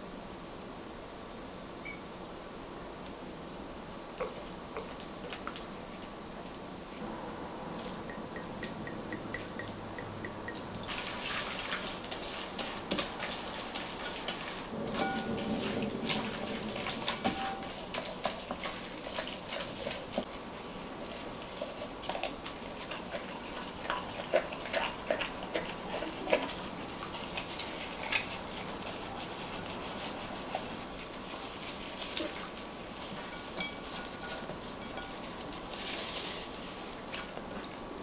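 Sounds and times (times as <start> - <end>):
hands squelching wet marinade: 7.8 - 37.3.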